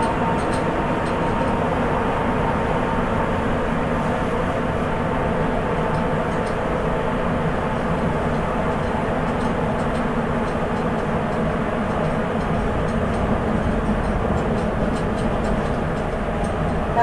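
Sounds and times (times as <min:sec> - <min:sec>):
subway train rumbling in tunnel: 0:00.0 - 0:17.0.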